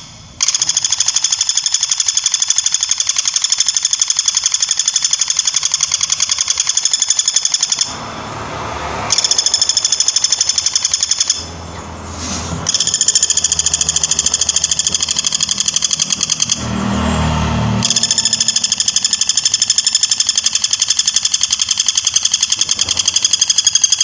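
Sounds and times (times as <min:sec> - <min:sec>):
woodpecker rattling call: 0:00.0 - 0:07.9, 0:09.1 - 0:11.5, 0:12.7 - 0:16.6, 0:17.8 - 0:24.0.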